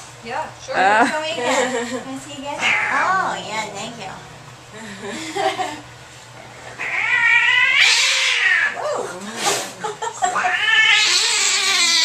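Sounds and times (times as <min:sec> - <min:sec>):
cat yowling angrily: 0:02.6 - 0:03.2, 0:06.8 - 0:09.0, 0:10.3 - 0:12.0.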